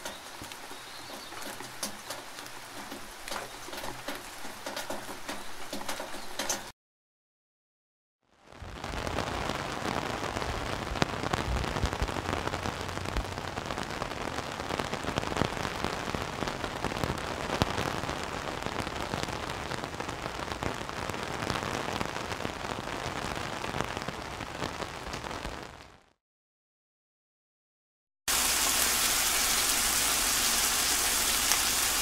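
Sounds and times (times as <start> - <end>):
raindrops splatting on wet surface: 0.0 - 6.7, 8.6 - 26.0, 28.3 - 32.0.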